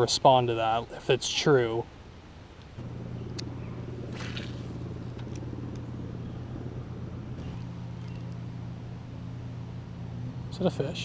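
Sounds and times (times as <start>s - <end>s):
engine humming: 2.6s - 11.0s
brief swish: 4.1s - 4.7s.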